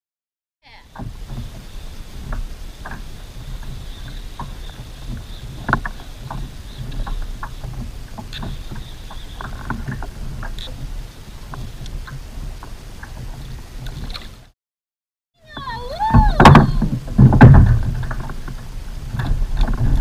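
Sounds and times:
water lapping against kayak hull: 0.7s - 14.5s, 15.4s - 20.0s
small clicks and knocks: 5.1s - 10.8s.

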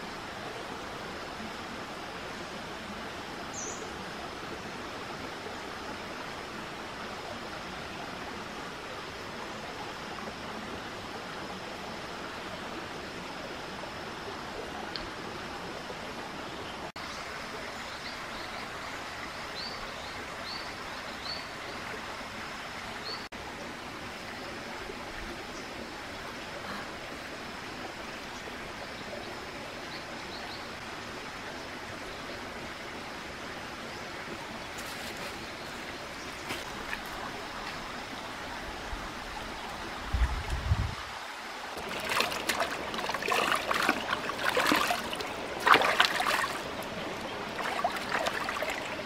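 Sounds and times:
water rushing over stones: 34.3s - 49.0s.

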